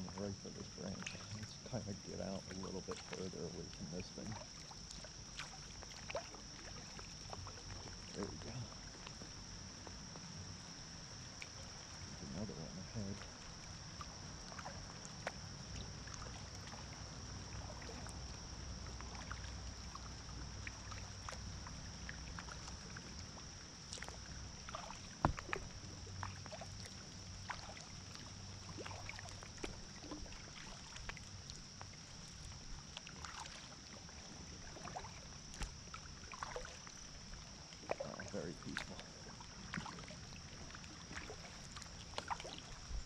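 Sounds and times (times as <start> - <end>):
steady low rumble: 0.0 - 5.2
water drips and taps: 24.8 - 25.7.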